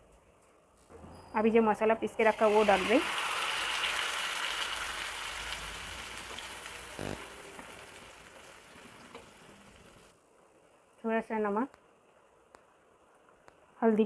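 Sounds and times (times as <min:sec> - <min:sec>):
paste sizzling in hot oil: 0:02.2 - 0:10.1.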